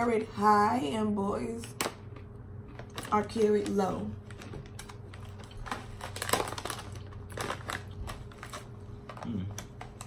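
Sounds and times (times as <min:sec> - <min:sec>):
plastic bag crinkling: 0:02.6 - 0:10.0
granola crunching while chewed: 0:04.3 - 0:10.0.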